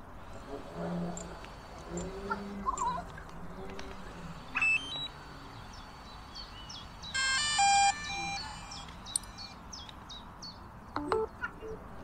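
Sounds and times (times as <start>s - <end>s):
small birds chirping: 1.1s - 12.0s
rising electronic beeps: 4.5s - 5.2s, 7.1s - 9.6s
electronic chime: 7.2s - 9.6s.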